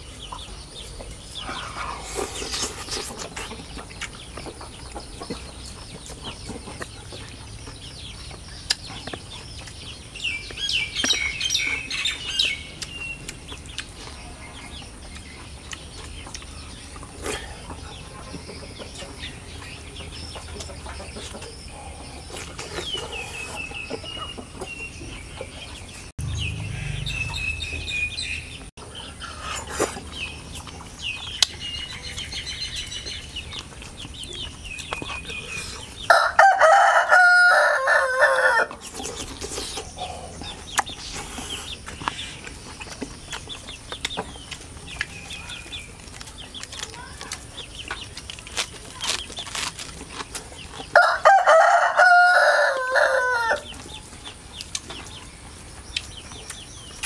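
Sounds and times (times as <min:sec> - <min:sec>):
high bird chirps: 0:26.2 - 0:28.7
rooster crowing: 0:36.1 - 0:38.7, 0:50.9 - 0:53.7.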